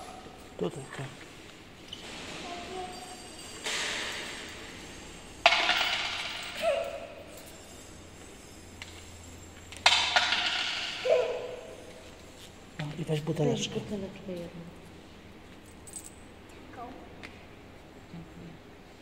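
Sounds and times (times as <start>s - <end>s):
coins clinking into wooden box: 3.0s - 8.0s.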